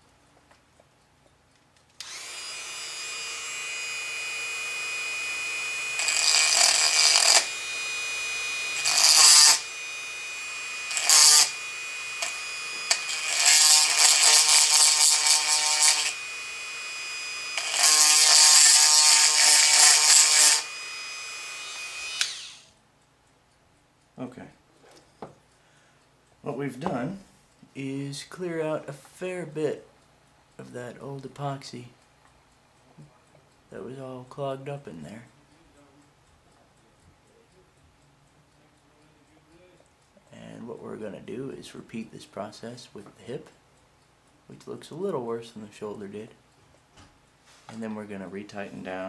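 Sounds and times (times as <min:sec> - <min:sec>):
rotary tool grinding: 0:02.0 - 0:22.7.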